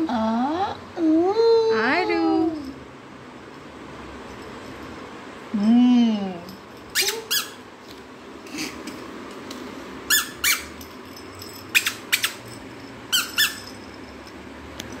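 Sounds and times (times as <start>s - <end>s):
rubber squeeze toy squeaking: 6.9s - 7.6s, 10.1s - 10.7s, 11.7s - 12.4s, 13.1s - 13.6s.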